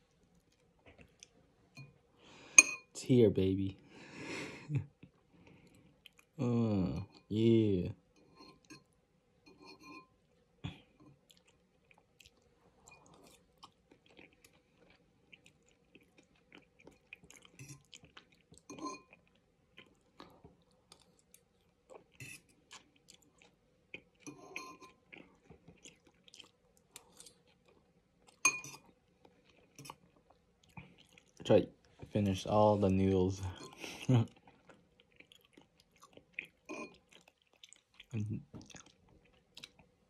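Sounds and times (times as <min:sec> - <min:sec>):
person chewing and slurping noodles: 0:10.3 - 0:31.4, 0:33.5 - 0:40.0.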